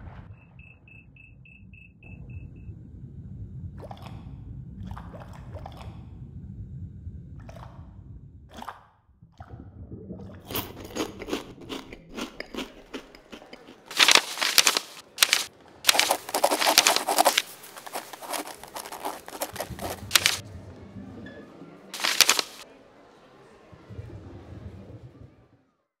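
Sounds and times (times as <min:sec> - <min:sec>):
crunching and scraping strokes: 0:11.0 - 0:20.4, 0:22.0 - 0:22.6.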